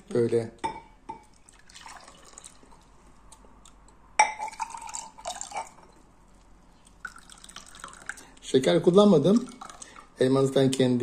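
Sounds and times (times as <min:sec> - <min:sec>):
juice pouring into glasses: 0:01.3 - 0:02.9, 0:04.4 - 0:06.0, 0:06.9 - 0:10.2
glass clinking: 0:04.2 - 0:06.0.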